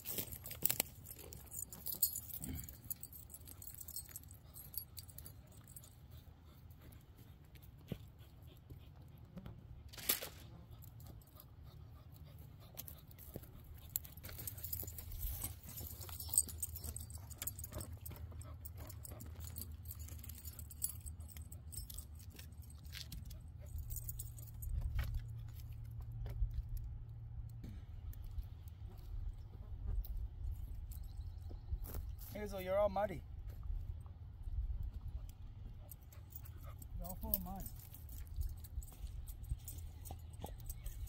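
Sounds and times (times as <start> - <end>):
dog collar tags jingling: 0.0 - 6.9, 12.7 - 26.6, 35.2 - 41.0.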